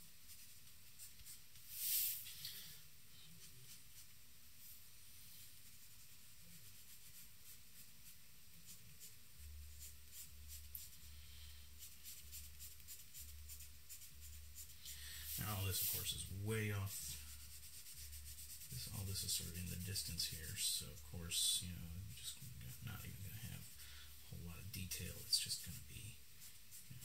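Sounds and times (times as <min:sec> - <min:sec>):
charcoal scratching on paper: 0:05.6 - 0:11.1, 0:11.8 - 0:20.8.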